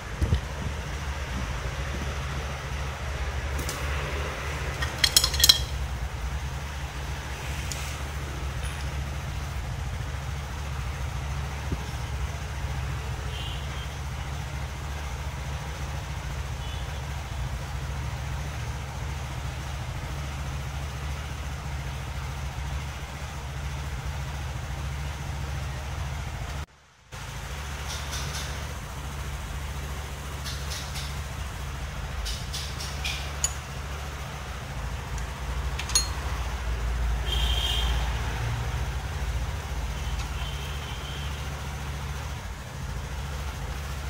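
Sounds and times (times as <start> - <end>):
low mechanical hum: 0.0 - 44.0.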